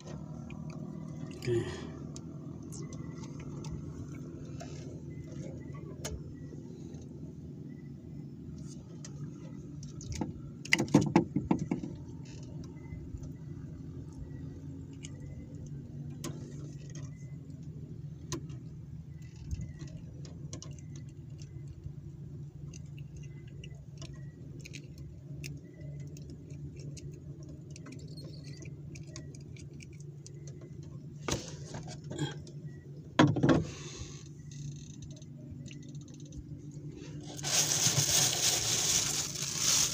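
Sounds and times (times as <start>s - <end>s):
low hum: 0.0s - 10.5s.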